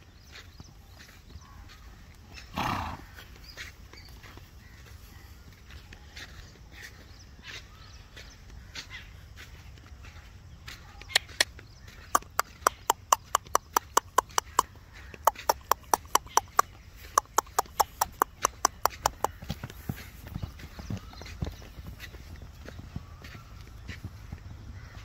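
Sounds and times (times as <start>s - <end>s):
hooves thudding in sand: 0.0s - 25.0s
person clicking tongue: 12.2s - 19.4s.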